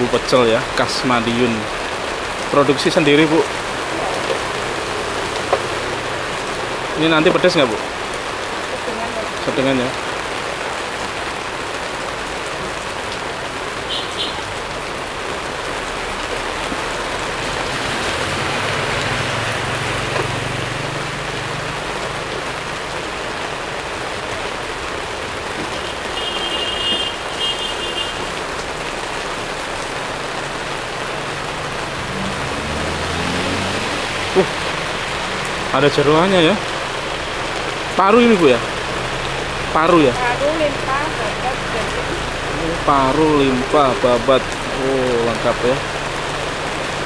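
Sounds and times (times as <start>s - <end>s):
heavy rain on tent roof: 0.0s - 47.0s.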